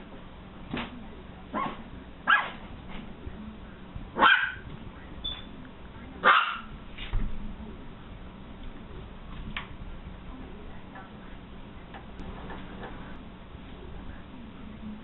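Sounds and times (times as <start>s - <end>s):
small dog barking: 1.5s - 2.6s, 4.2s - 4.7s, 6.2s - 6.7s.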